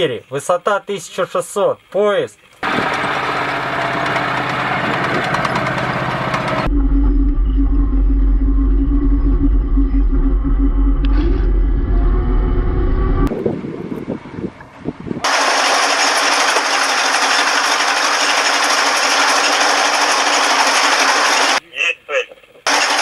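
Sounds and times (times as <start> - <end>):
diesel engine running: 2.6 - 21.6, 22.7 - 23.0
deep heavy rumble: 4.6 - 15.3
steady hum: 6.4 - 16.5.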